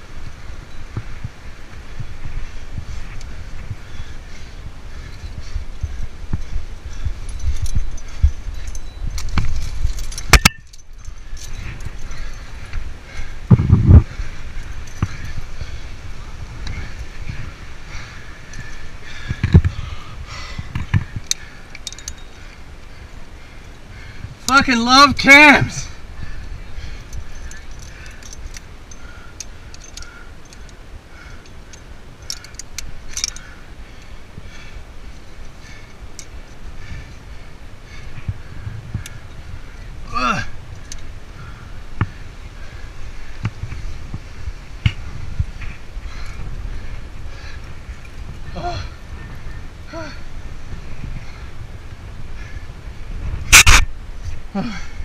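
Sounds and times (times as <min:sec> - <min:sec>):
metal climbing hardware clinking: 0:04.9 - 0:41.2.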